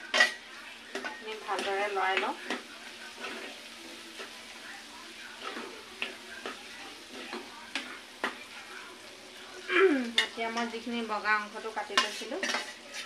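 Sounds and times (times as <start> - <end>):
metal spoon scraping a pan: 0.0 - 4.4, 5.3 - 8.6, 11.6 - 13.0
food sizzling in a frying pan: 0.0 - 13.0.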